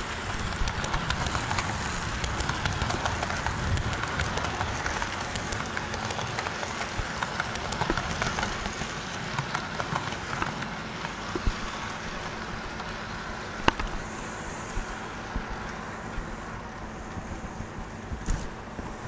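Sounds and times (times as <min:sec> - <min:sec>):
metal wheels clicking over rail joints: 0:00.0 - 0:14.0
model train cars rolling: 0:00.0 - 0:19.0.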